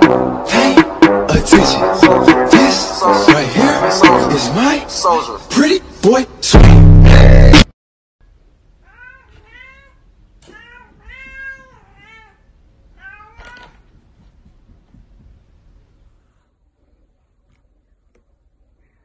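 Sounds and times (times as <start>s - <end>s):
cat meowing: 8.8s - 13.8s.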